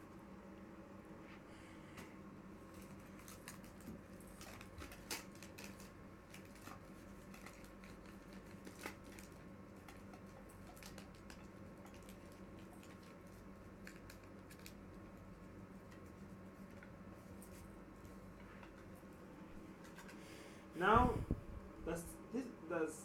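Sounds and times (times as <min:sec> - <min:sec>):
low room hum: 0:00.0 - 0:23.0
tape and foil crinkling: 0:02.7 - 0:18.8.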